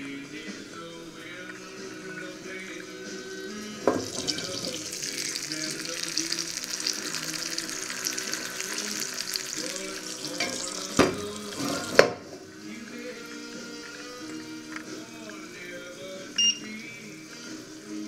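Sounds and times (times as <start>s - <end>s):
music: 0.0s - 18.0s
food sizzling in a pan: 2.9s - 15.6s, 16.7s - 18.0s.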